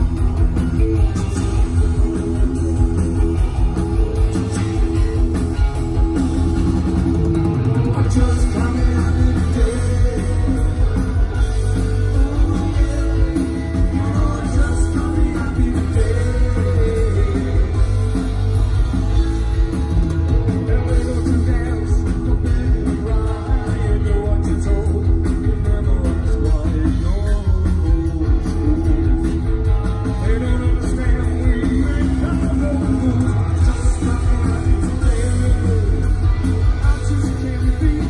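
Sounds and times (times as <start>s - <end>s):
bass guitar: 0.0s - 38.0s
drums: 0.0s - 38.0s
electric guitar: 0.0s - 38.0s
man singing: 7.8s - 18.3s, 20.3s - 38.0s.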